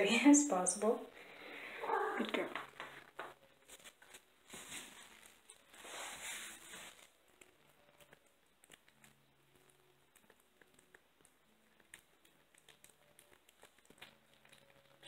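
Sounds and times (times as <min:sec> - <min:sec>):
soft rustles: 0:02.2 - 0:09.7
kitten licking and chewing: 0:06.6 - 0:15.0.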